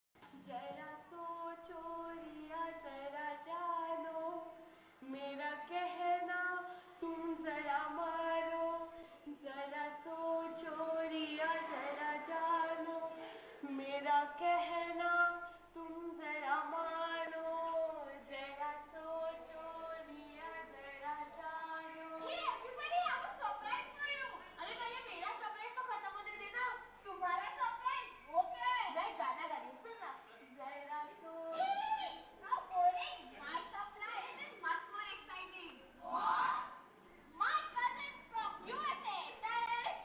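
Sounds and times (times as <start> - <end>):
woman and children singing: 0.3 - 22.4, 30.5 - 31.9.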